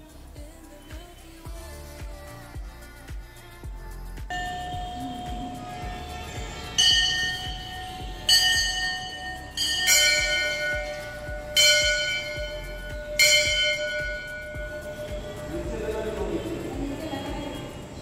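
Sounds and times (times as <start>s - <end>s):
temple bell ringing: 4.3s - 16.4s.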